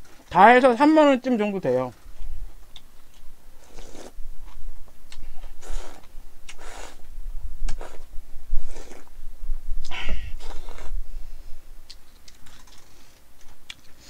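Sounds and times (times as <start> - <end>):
person slurping noodles: 3.6 - 4.2, 5.6 - 7.0, 7.7 - 9.1, 10.3 - 11.0
chewing: 11.9 - 14.0.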